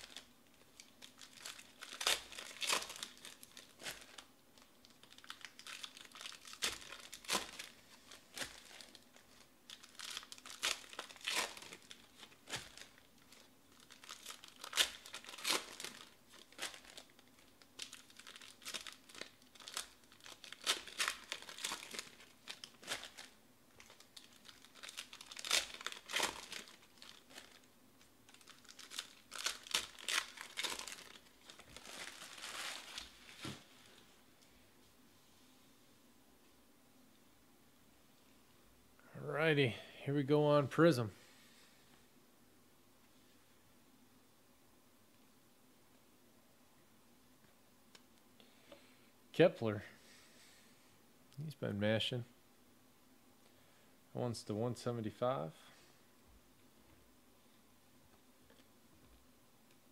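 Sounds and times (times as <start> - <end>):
wrappers crinkling: 0.0 - 34.1
foil packs tearing open: 0.8 - 4.2, 4.8 - 9.0, 9.7 - 13.1, 13.8 - 27.6, 28.3 - 33.4.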